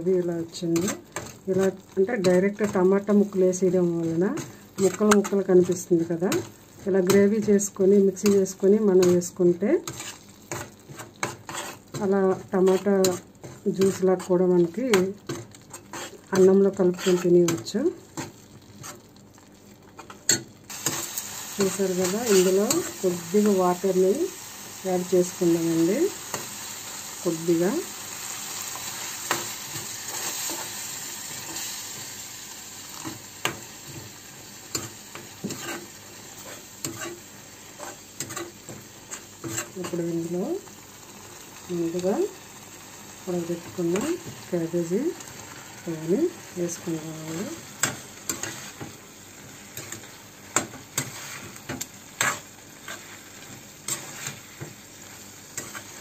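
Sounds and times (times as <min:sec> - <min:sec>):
gravy sizzling in a pan: 0:00.0 - 0:56.0
spatula scraping a pan: 0:00.7 - 0:19.1, 0:20.0 - 0:23.9, 0:24.6 - 0:32.2, 0:32.8 - 0:40.2, 0:46.8 - 0:56.0.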